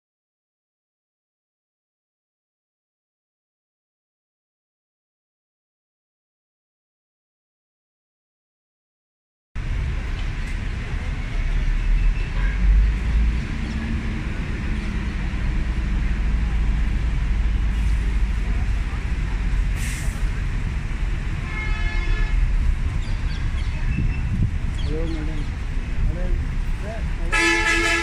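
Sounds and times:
street ambience rumble: 0:09.6 - 0:28.0
short hiss: 0:19.8 - 0:20.3.

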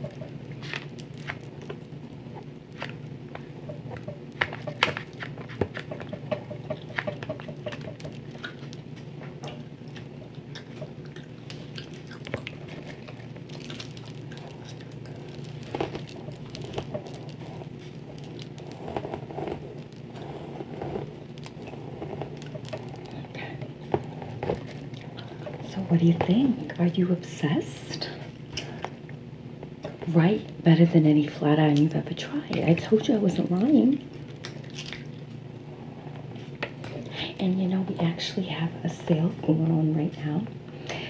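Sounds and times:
steady low hum: 0:00.0 - 0:41.0
bangles jangling: 0:11.7 - 0:20.4, 0:21.0 - 0:23.4.

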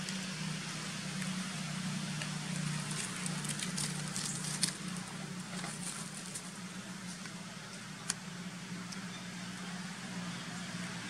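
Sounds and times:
dry leaves crackling: 0:00.0 - 0:08.2.

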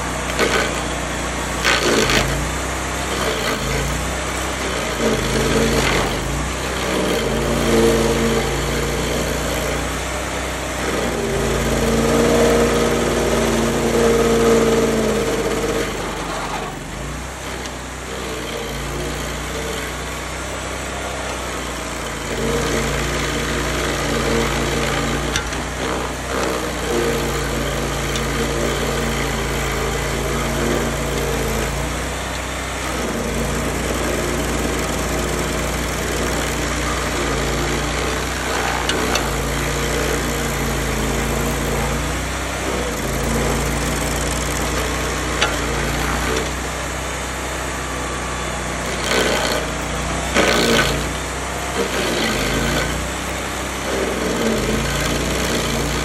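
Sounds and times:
short rasping bursts: 0:00.0 - 0:46.9, 0:47.5 - 0:56.0
stump grinder engine running: 0:00.0 - 0:56.0.

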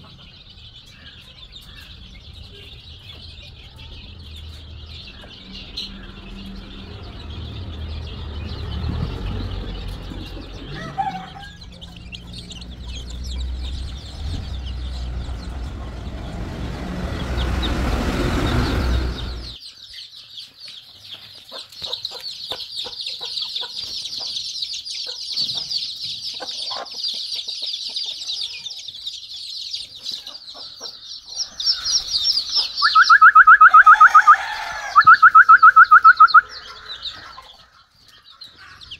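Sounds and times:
chicks cheeping: 0:00.0 - 0:38.9
low rumble: 0:02.0 - 0:19.6
loud repeated bird call: 0:30.6 - 0:38.9.

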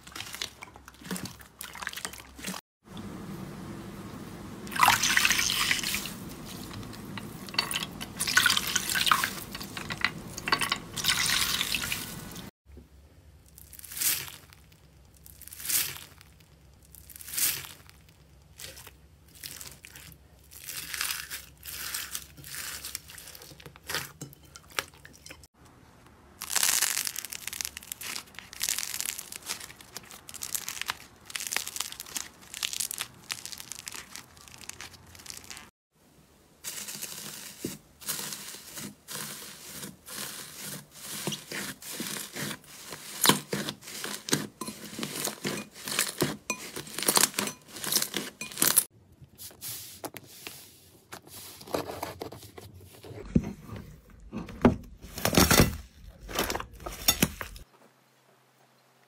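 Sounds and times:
hands squelching slime: 0:00.0 - 0:02.6, 0:26.4 - 0:35.7.

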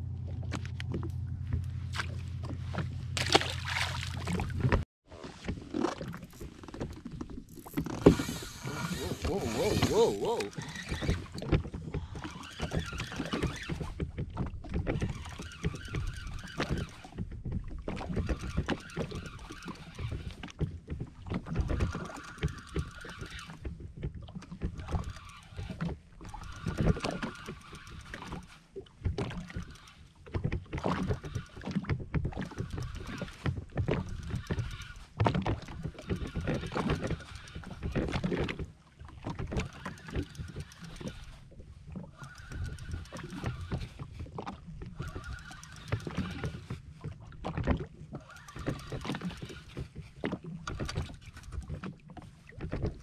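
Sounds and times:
water slapping hull: 0:00.0 - 0:53.0
fishing reel winding: 0:07.5 - 0:11.3, 0:12.1 - 0:13.8, 0:15.0 - 0:17.1, 0:18.2 - 0:20.4, 0:21.8 - 0:23.6, 0:24.8 - 0:28.6, 0:29.3 - 0:30.1, 0:32.4 - 0:38.3, 0:39.5 - 0:41.4, 0:42.0 - 0:44.2, 0:44.9 - 0:46.8, 0:48.2 - 0:49.9.

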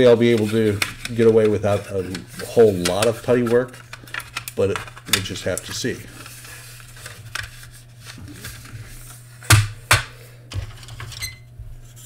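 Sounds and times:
plastic parts clattering: 0:00.0 - 0:08.7, 0:10.5 - 0:11.3.

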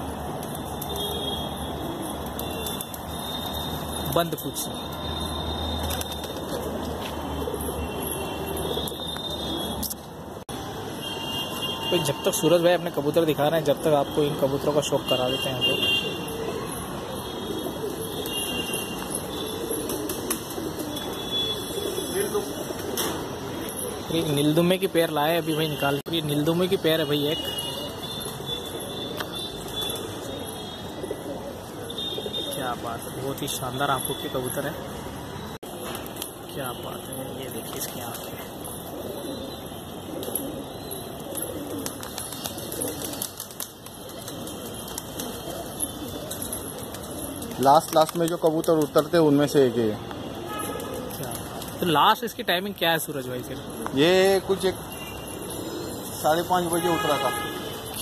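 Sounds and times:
pigeons cooing: 0:00.0 - 0:04.0, 0:04.8 - 0:09.9, 0:15.8 - 0:24.9, 0:27.4 - 0:33.5, 0:37.6 - 0:52.3, 0:53.6 - 0:57.0.

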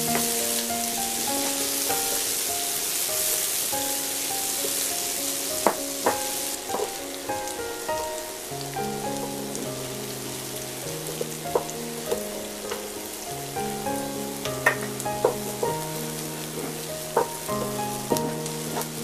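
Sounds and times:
vegetables sizzling in a frying pan: 0:00.0 - 0:19.0
wooden spoon knocking against pan: 0:14.6 - 0:15.8, 0:17.1 - 0:18.9.

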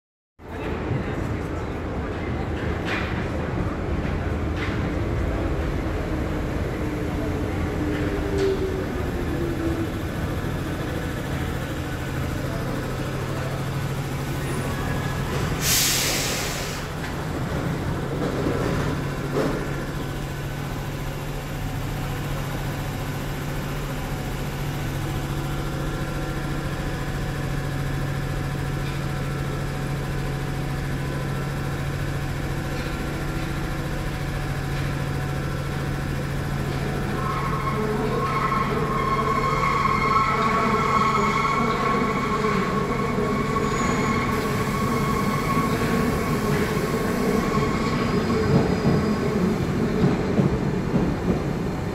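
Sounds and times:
heavy vehicle humming: 0:00.7 - 0:50.9
air hiss: 0:15.6 - 0:16.9
high squealing tones: 0:37.0 - 0:46.6.

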